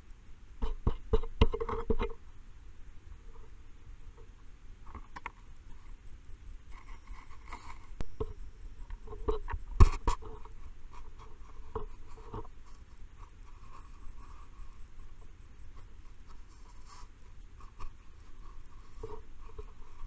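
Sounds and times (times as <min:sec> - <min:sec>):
scratchy rubbing with twigs: 0:06.7 - 0:20.0.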